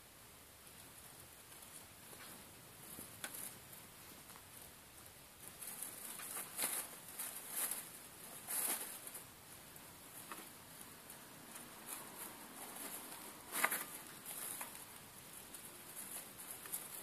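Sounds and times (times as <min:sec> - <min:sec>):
mice rustling in dry hay: 0:00.5 - 0:17.0.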